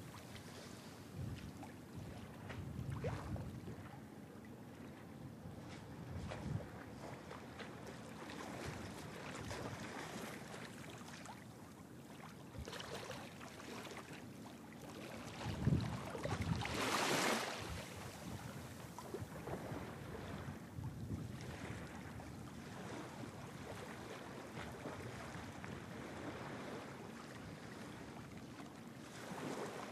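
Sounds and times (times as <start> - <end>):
wind buffeting microphone: 1.1 - 3.8, 5.4 - 7.1, 15.4 - 22.3.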